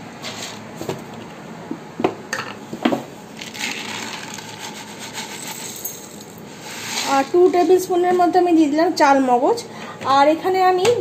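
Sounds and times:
seeds pattering into steel bowl: 3.4 - 6.1.

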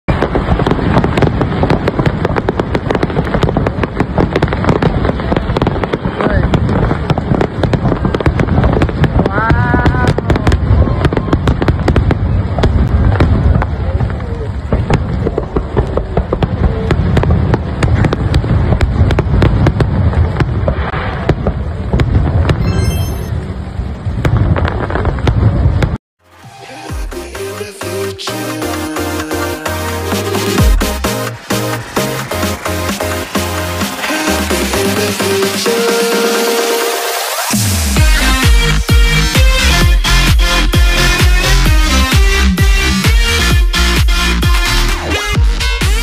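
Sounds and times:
firework bangs and crackles: 0.1 - 46.0
continuous low rumble: 4.9 - 26.0.

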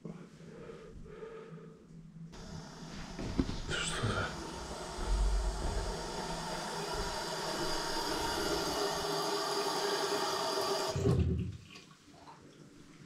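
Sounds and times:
tap water running into basin: 4.4 - 12.0.

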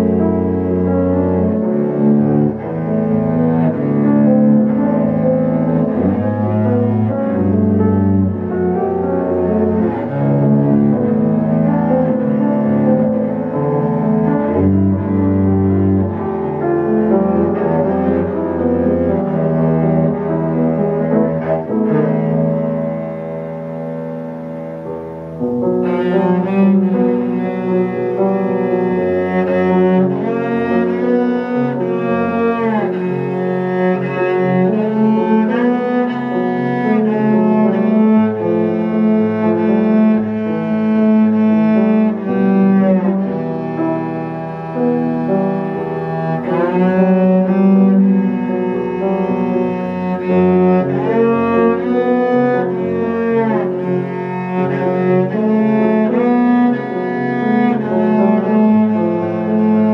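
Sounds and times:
bowed cello: 0.0 - 59.9
piano: 0.0 - 59.9.

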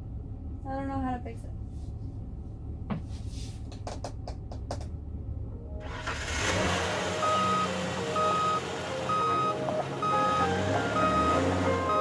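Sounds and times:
truck reversing beeper: 5.8 - 12.0.

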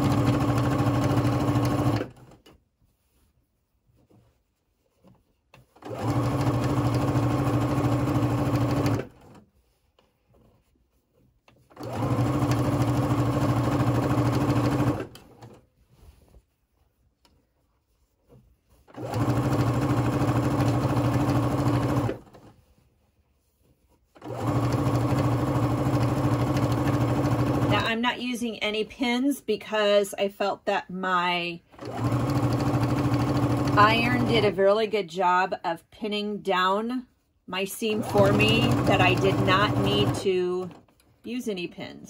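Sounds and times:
sewing machine stitching: 0.0 - 2.6, 5.6 - 9.5, 11.5 - 15.6, 18.9 - 22.5, 24.1 - 28.0, 31.7 - 34.6, 37.8 - 41.0.

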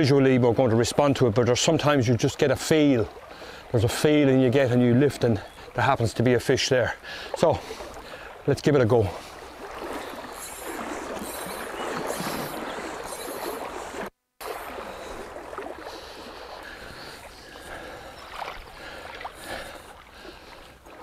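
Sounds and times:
river water over stones: 0.0 - 21.0
water splashing around legs: 7.1 - 21.0.

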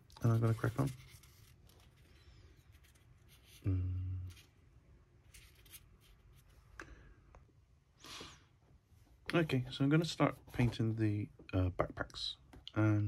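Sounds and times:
man humming: 3.6 - 4.4.

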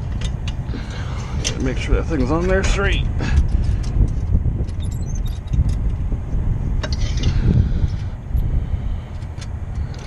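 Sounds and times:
steady low rumble: 0.0 - 10.0
small metallic clicks and clinks: 3.3 - 5.9, 9.1 - 10.0.

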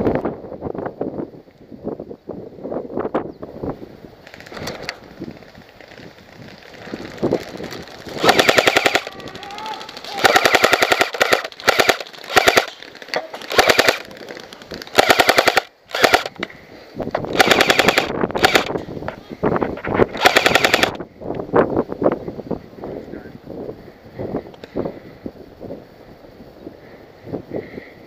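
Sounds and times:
airsoft rifle firing bursts: 8.1 - 12.8, 13.4 - 14.2, 14.9 - 16.4, 17.3 - 18.8, 20.1 - 21.0.

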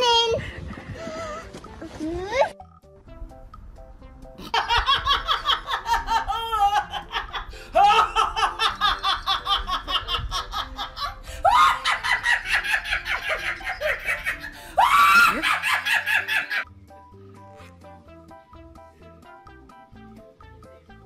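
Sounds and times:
woman laughing hard: 4.4 - 16.6.

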